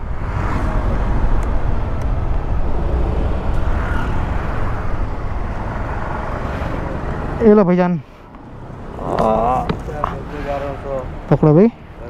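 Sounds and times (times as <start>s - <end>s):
wind rumbling on microphone: 0.0s - 7.4s
motorbike road rush: 0.0s - 12.0s.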